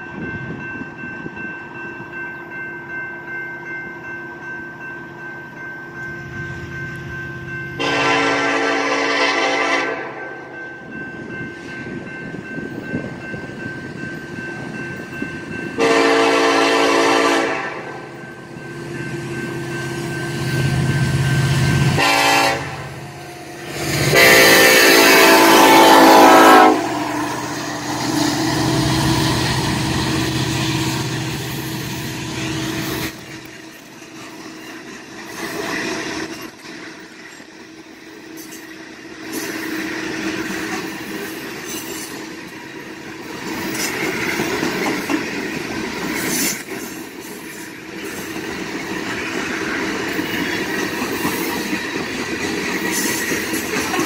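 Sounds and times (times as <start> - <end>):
locomotive horn blasts: 7.8 - 10.4, 15.8 - 18.1, 21.8 - 23.2, 24.0 - 27.2.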